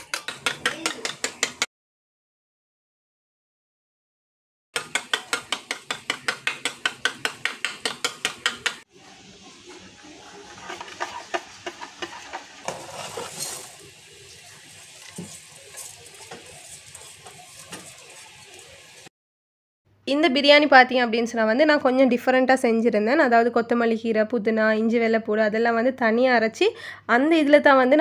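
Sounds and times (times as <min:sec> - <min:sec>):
soft steady sizzle: 0:08.9 - 0:19.1
whisking in a steel bowl: 0:09.7 - 0:19.1.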